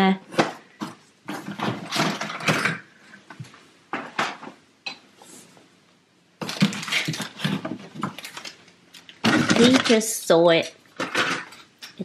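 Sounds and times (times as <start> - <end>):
ornaments rustling and clinking in box: 6.4 - 10.3.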